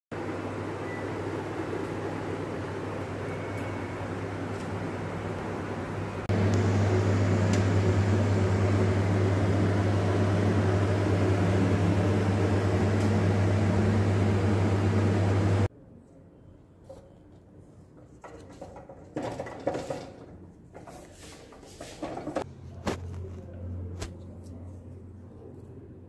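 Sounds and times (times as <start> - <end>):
electric motor humming: 6.3 - 15.7.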